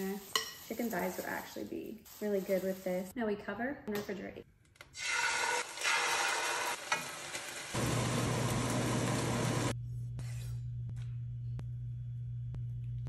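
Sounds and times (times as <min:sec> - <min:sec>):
chicken sizzling in a pan: 0:05.0 - 0:09.7
low steady hum: 0:09.7 - 0:13.0.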